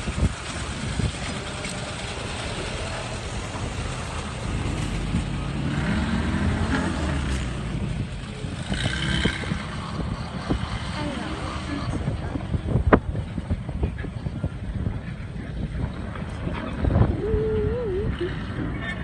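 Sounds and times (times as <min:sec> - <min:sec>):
engine revving under load: 0:00.9 - 0:12.9.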